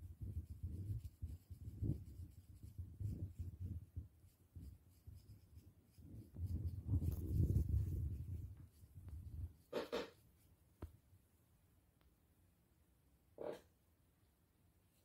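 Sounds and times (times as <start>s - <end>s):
metal comb scratching scalp: 9.5s - 10.3s.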